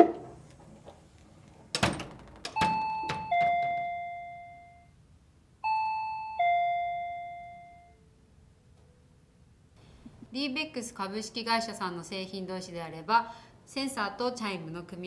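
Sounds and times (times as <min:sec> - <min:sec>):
two-tone ding-dong chime: 0:05.6 - 0:08.0.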